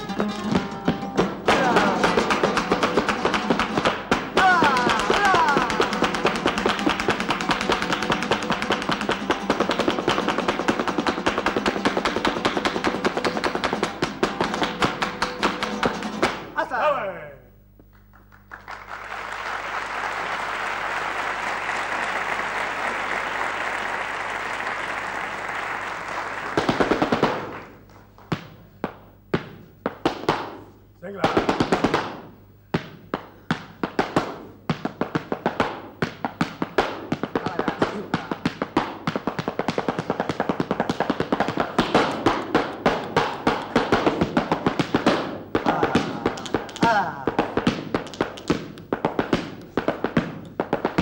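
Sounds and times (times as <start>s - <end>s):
audience applauding: 1.5s - 13.8s, 17.9s - 27.8s.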